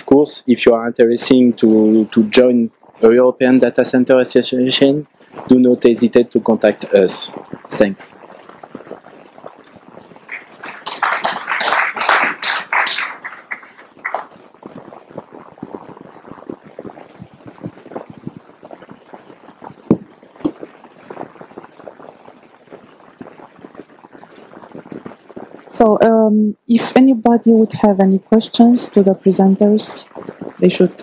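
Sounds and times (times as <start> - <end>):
audience applauding: 10.3 - 14.4.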